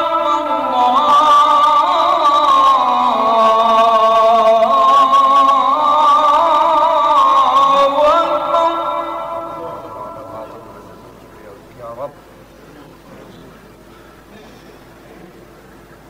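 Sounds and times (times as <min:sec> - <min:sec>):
man chanting: 0:00.0 - 0:12.2.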